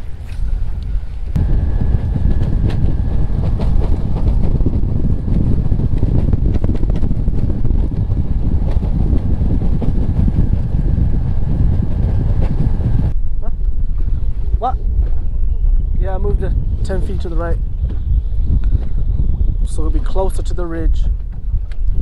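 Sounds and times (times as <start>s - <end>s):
outboard motor droning: 0.0s - 15.3s
wind noise on microphone: 0.0s - 22.0s.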